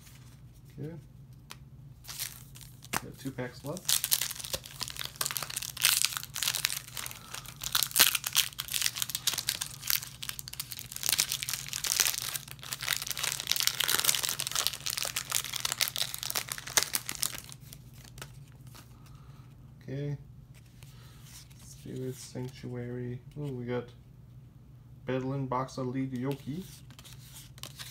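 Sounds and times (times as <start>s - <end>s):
foil wrapper crinkling: 2.0s - 18.9s.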